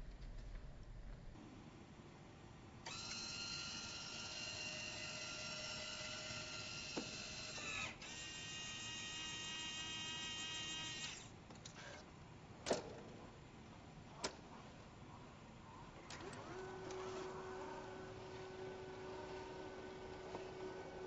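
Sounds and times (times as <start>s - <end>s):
small electric drive whining: 2.8s - 12.1s, 16.1s - 21.0s.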